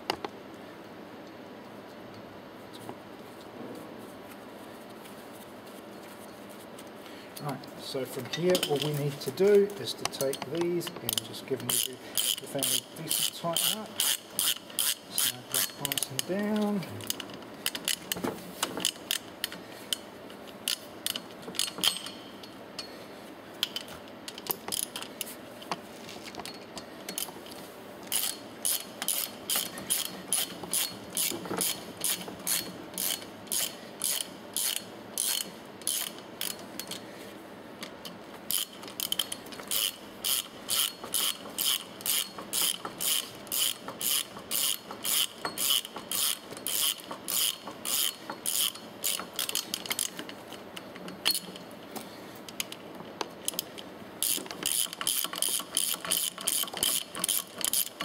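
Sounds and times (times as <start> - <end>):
ratchet wrench clicking: 8.4 - 9.1, 10.0 - 18.1, 18.8 - 20.0, 20.6 - 22.2, 23.6 - 25.1, 28.1 - 37.0, 38.5 - 50.3, 53.4 - 58.0.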